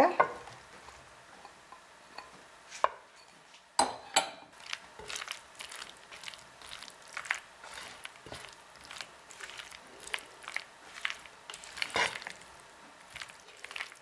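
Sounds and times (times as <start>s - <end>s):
spatula stirring pasta in a bowl: 4.5s - 14.0s
short scrapes and squishes: 4.6s - 14.0s.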